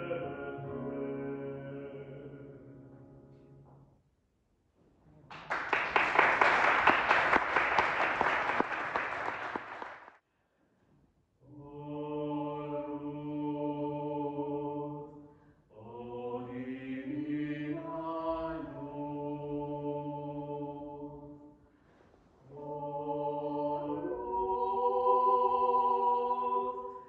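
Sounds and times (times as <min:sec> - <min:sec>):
carol with sustained chords: 0:00.0 - 0:03.5
audience applauding: 0:05.3 - 0:10.2.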